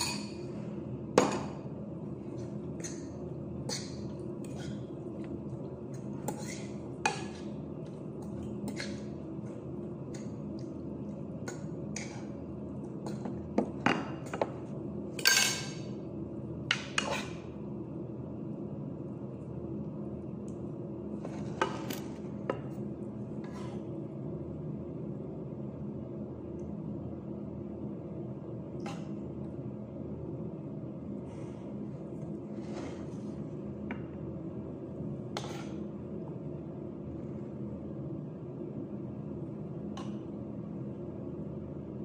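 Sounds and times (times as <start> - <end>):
steady low hum: 0.0 - 42.0
utensil scraping a pan: 6.2 - 7.6, 32.4 - 33.4.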